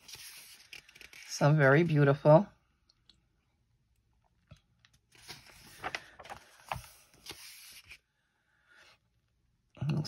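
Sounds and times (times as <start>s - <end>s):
book page turning: 0.0s - 2.0s, 4.8s - 8.1s.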